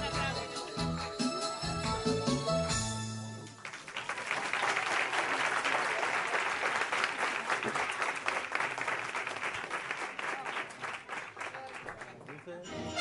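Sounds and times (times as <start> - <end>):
song with jingle bells: 0.0 - 3.4, 12.7 - 13.0
audience applause: 3.5 - 13.0.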